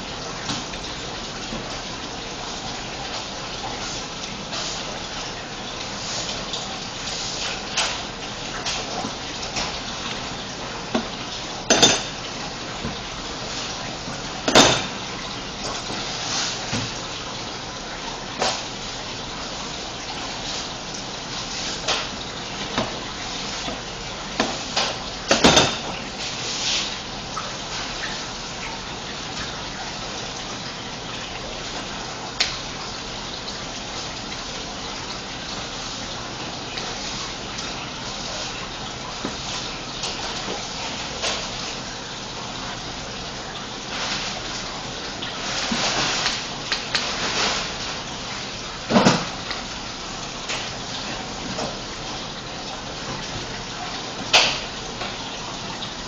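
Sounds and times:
rushing kitchen background noise: 0.0 - 56.0
kitchen utensils clattering: 11.7 - 12.2, 14.4 - 15.0, 24.8 - 26.0.

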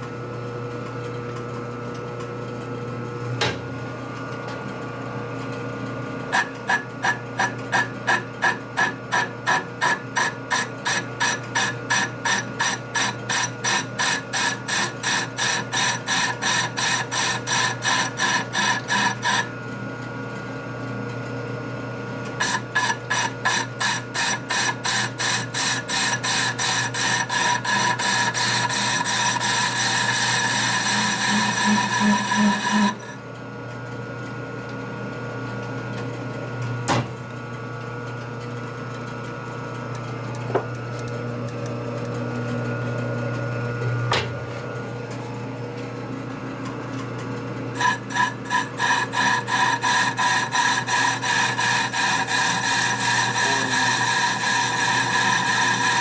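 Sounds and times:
cutting tool scraping metal: 6.3 - 19.5, 22.4 - 33.2, 47.8 - 56.0
metal lathe running: 6.3 - 19.6, 22.4 - 33.2, 47.7 - 56.0.

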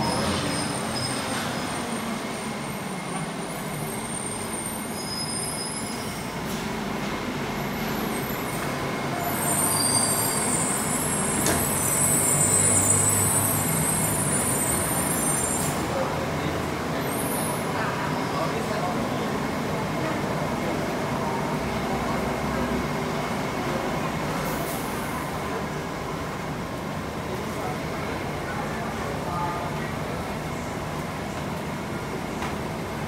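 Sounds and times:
light rail vehicle rumble: 0.0 - 33.0.

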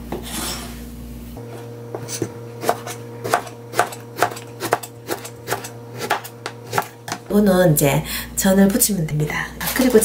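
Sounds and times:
knife slicing eggplant: 1.5 - 7.2.

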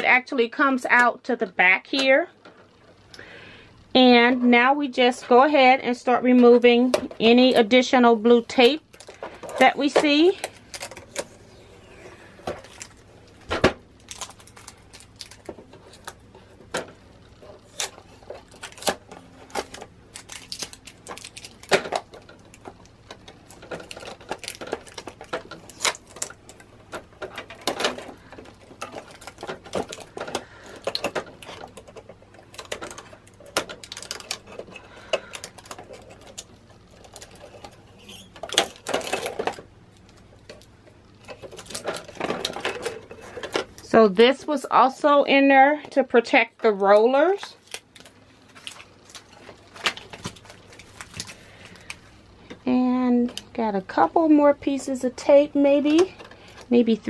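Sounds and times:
faint steady hum: 0.0 - 57.0
tape crinkling: 6.2 - 44.5, 46.6 - 52.6.

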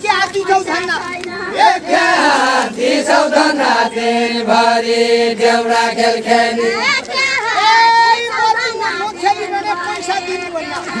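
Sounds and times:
people chanting folk song: 0.0 - 11.0.

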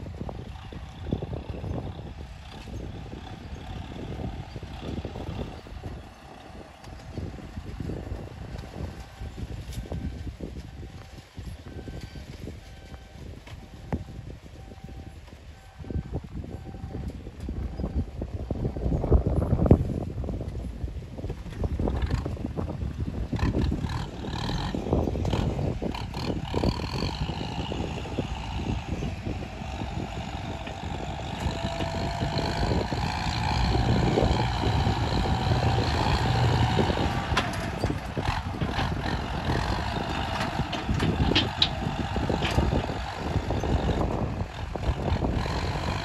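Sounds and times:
excavator diesel engine working: 0.0 - 19.1, 21.7 - 46.0.

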